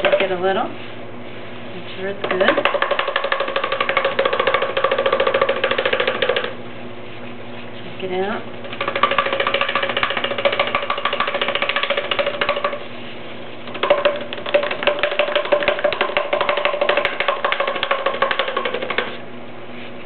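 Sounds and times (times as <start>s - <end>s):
clay coil rattling in cardboard tube: 2.2s - 6.6s, 8.7s - 12.9s, 13.7s - 19.2s.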